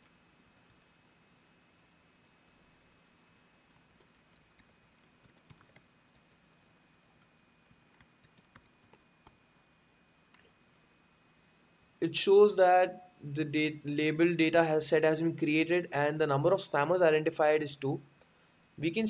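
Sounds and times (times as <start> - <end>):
faint keyboard typing: 0.0 - 1.0, 2.4 - 9.7.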